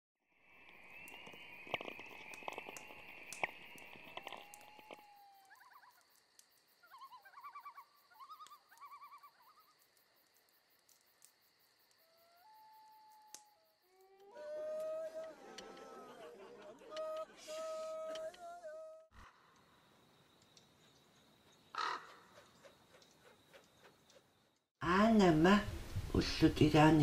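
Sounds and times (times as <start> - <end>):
crackling hiss with clicks: 0.6 - 6.9, 8.2 - 12.1.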